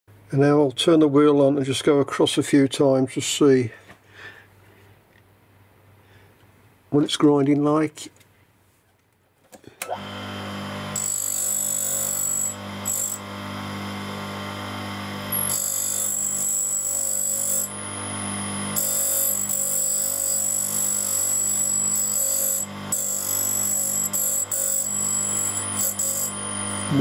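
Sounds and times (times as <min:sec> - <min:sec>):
grinder motor humming: 0:09.8 - 0:27.0
high-pitched grinding whine: 0:09.9 - 0:27.0.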